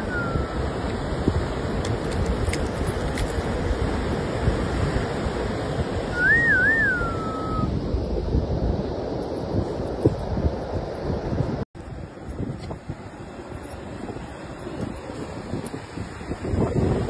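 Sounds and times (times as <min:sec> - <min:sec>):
wavering whistle: 0:00.0 - 0:00.7, 0:06.1 - 0:07.7
wind buffeting microphone: 0:00.0 - 0:17.0.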